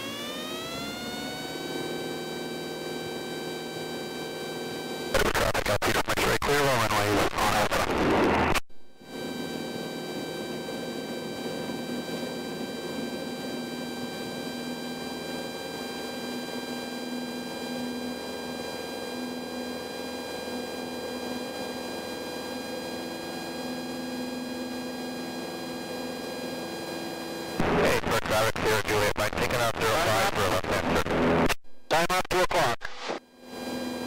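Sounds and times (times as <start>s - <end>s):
propeller plane engine drone: 0.0s - 31.5s, 33.1s - 34.0s.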